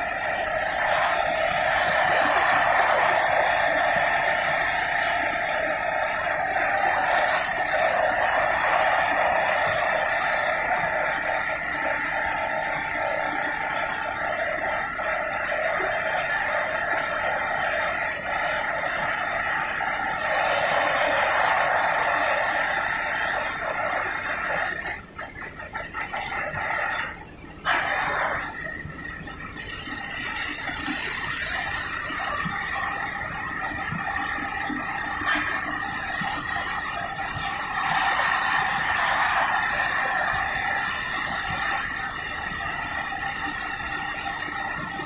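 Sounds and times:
heavy machinery whining: 0.0s - 45.0s.

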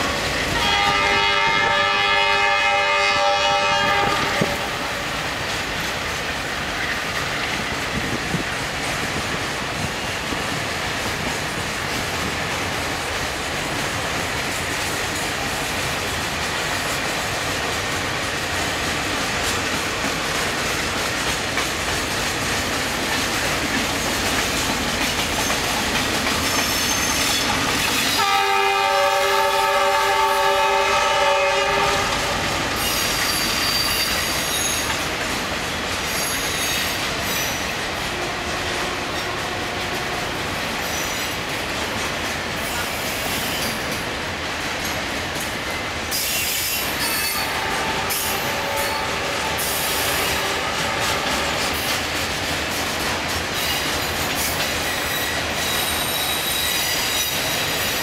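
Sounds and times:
train rumble: 0.0s - 58.0s
train air horn: 0.5s - 5.1s, 28.1s - 34.1s, 38.0s - 40.4s, 46.2s - 51.8s
wheels clattering over rail joints: 17.7s - 28.2s.

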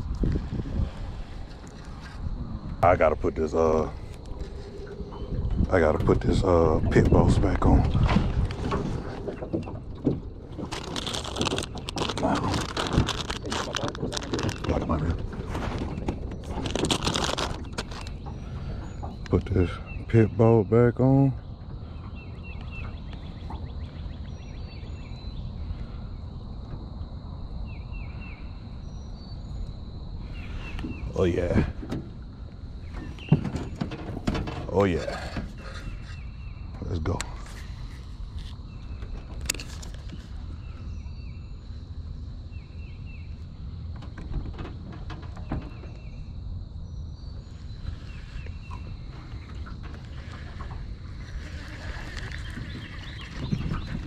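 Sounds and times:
faint high insect tone: 0.0s - 7.8s, 9.6s - 54.0s
steady low rumble: 0.0s - 33.8s
birds chirping: 0.2s - 54.0s.

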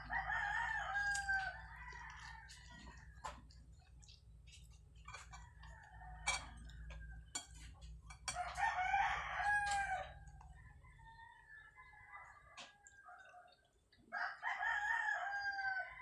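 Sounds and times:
rooster crowing: 0.0s - 3.1s, 8.3s - 13.4s, 14.1s - 16.0s.

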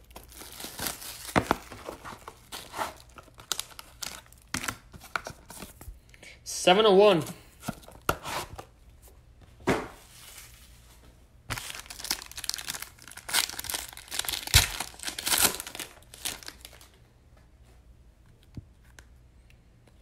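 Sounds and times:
foil pack crinkling: 0.0s - 5.8s, 11.5s - 17.0s.

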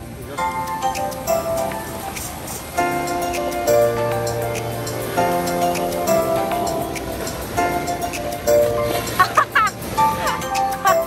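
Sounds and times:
background music with chords: 0.0s - 11.0s.

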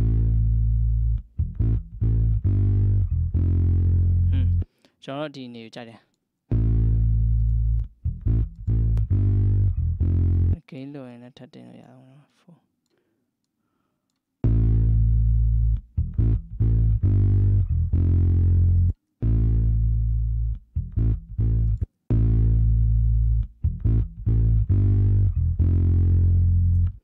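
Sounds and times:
bass guitar sustained low notes: 0.0s - 4.7s, 6.5s - 10.6s, 14.4s - 27.0s.

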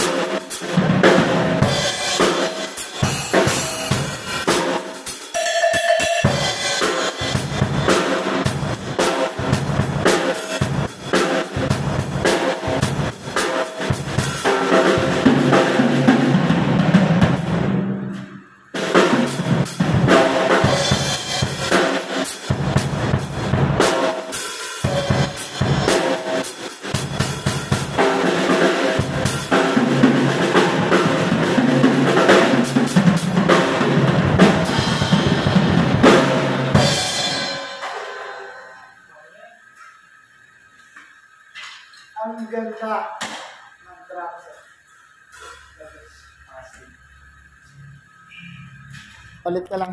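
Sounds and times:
drum kit playing: 0.0s - 39.0s.

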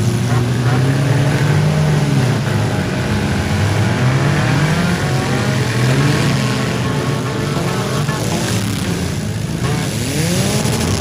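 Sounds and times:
car engines revving: 0.0s - 11.0s.

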